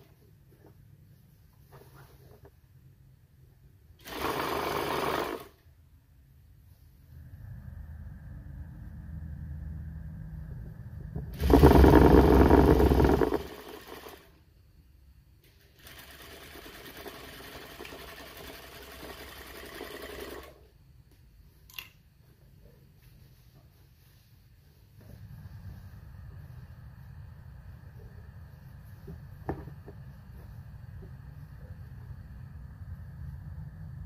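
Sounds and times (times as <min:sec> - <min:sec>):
sewing machine stitching: 0:04.0 - 0:05.6, 0:11.4 - 0:14.3, 0:15.6 - 0:20.6
low hum: 0:06.3 - 0:13.6.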